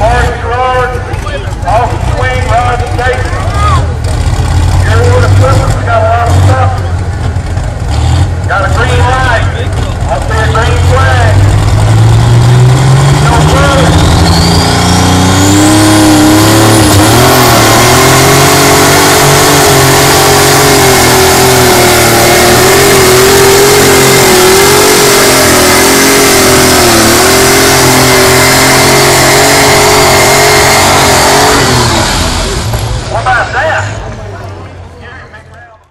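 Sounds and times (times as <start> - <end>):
tractor engine running flat out: 0.0 - 35.4.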